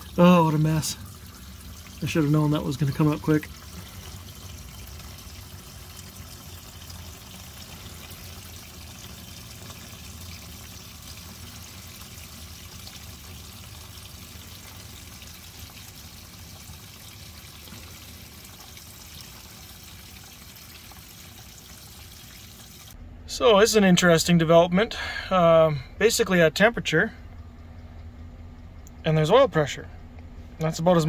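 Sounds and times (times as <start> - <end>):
fuel pouring in a stream: 0.0 - 23.0.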